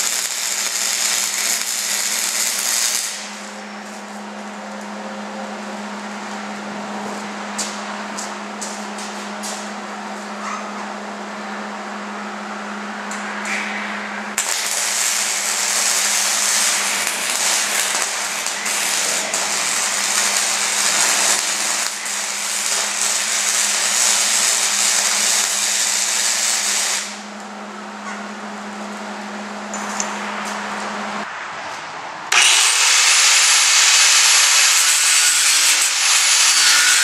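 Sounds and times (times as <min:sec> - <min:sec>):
welding arc crackling hiss: 0:00.0 - 0:04.2, 0:14.3 - 0:27.3, 0:32.3 - 0:37.0
steady low hum: 0:00.0 - 0:25.5, 0:26.7 - 0:31.3.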